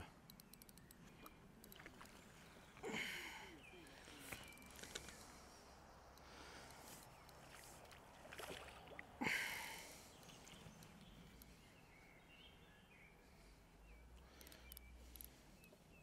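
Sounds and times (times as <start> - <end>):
faint bird chirps: 0.0 - 8.3
fish splashing: 7.4 - 9.2.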